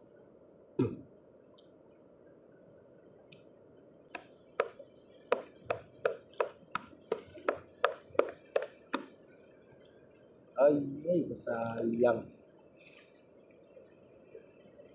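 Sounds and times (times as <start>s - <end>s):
stone knocking on rock: 4.6s - 9.1s.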